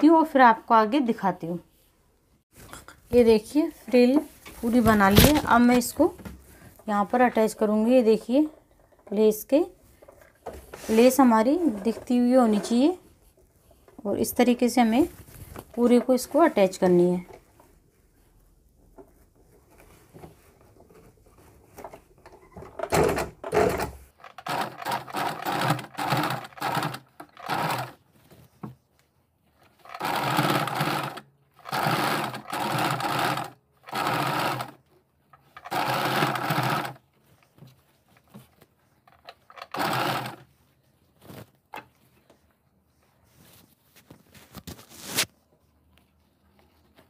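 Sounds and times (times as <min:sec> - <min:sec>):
sewing machine stitching: 0:23.0 - 0:28.0, 0:29.7 - 0:34.8, 0:35.4 - 0:37.0, 0:39.2 - 0:40.5.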